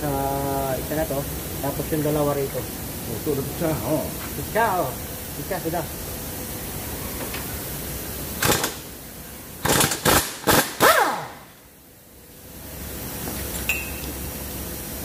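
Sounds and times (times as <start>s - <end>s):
pneumatic impact wrench bursts: 8.3s - 9.0s, 9.6s - 11.6s.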